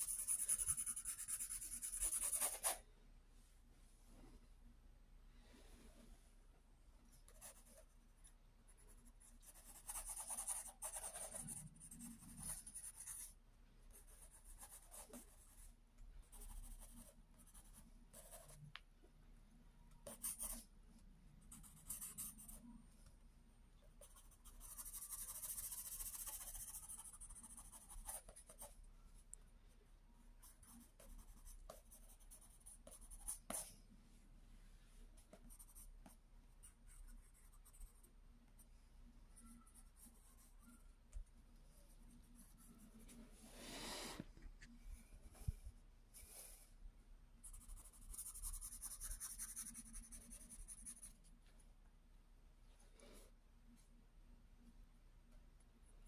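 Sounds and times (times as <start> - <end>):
pencil scratching on paper: 0.0 - 2.8, 8.7 - 15.7, 16.3 - 18.6, 20.0 - 20.7, 21.4 - 22.6, 24.0 - 28.8, 30.4 - 33.7, 35.2 - 38.1, 47.4 - 51.2.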